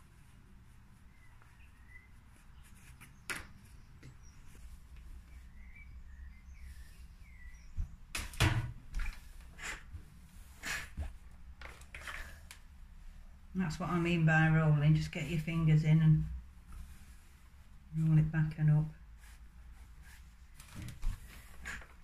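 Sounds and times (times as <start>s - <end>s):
faint bird chirps: 1.0s - 8.0s.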